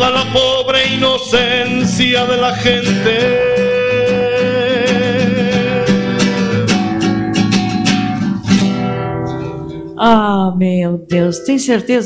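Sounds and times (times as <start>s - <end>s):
man singing held note: 0.0s - 6.8s
strummed classical guitar: 0.0s - 10.2s.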